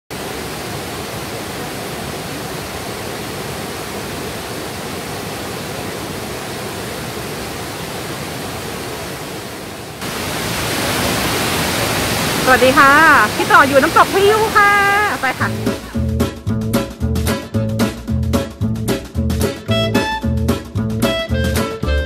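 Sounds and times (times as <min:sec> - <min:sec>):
waterfall rushing over rocks: 0:00.1 - 0:16.0.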